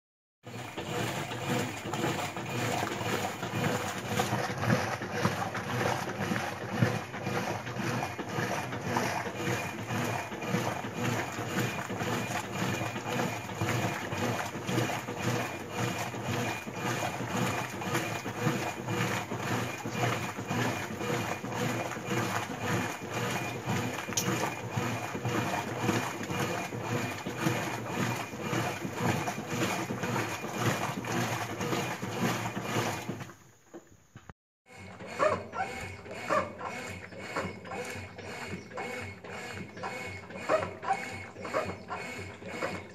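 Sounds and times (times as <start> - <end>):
washing machine motor hum: 0.4 - 34.0, 34.7 - 42.9
water sloshing: 0.5 - 33.8.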